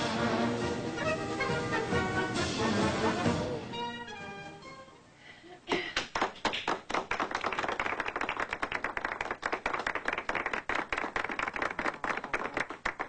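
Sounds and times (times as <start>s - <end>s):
audience clapping: 5.7s - 13.0s.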